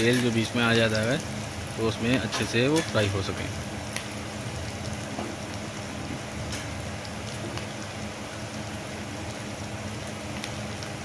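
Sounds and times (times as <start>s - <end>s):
faint crackles: 3.8s - 11.0s.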